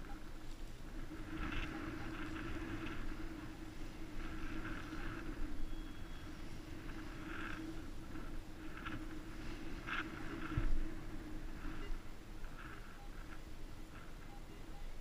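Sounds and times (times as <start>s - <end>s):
metal detector humming: 0.0s - 15.0s
wind rumble on microphone: 0.0s - 15.0s
metal detector signal tones: 14.0s - 15.0s.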